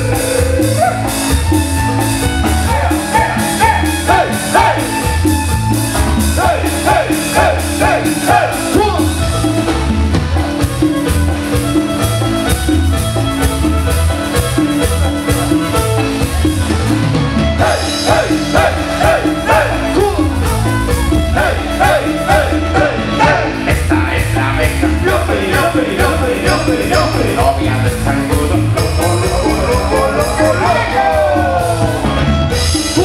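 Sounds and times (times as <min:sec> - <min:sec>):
latin dance band playing: 0:00.0 - 0:33.0
lead singer singing: 0:21.4 - 0:32.0.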